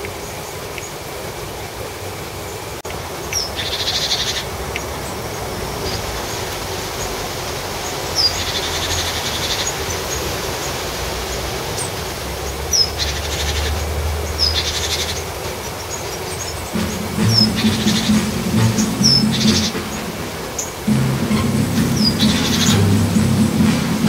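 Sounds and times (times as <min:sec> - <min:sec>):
outdoor background noise: 0:00.0 - 0:24.0
songbird trilling: 0:16.0 - 0:20.7, 0:21.7 - 0:23.2.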